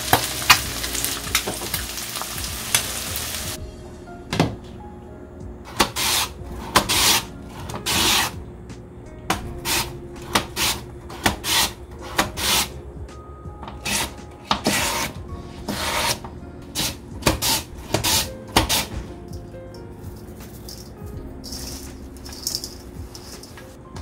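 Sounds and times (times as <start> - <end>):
cucumber scraping on mandoline slicer: 5.7 - 8.4, 9.4 - 12.7, 13.6 - 19.0.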